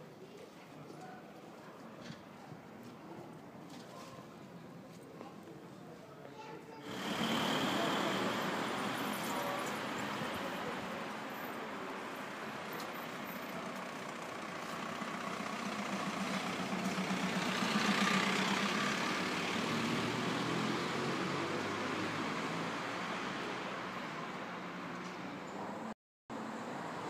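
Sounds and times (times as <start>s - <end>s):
city street noise: 0.0s - 27.0s
car passing at low speed: 6.8s - 27.0s.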